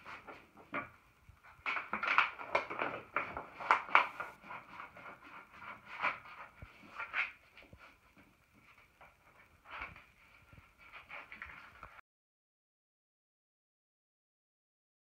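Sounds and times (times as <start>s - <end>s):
hands rubbing wallpaper: 1.4s - 12.0s.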